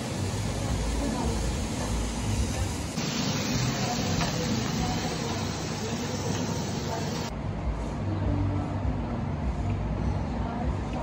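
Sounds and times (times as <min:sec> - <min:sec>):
meat sizzling on grill pan: 0:00.0 - 0:07.3.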